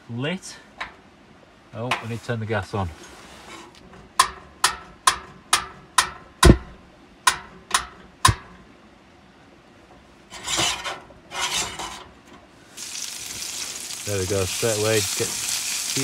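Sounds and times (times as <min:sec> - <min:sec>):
burner hiss: 0:12.6 - 0:16.0
food sizzling in a pan: 0:12.7 - 0:16.0.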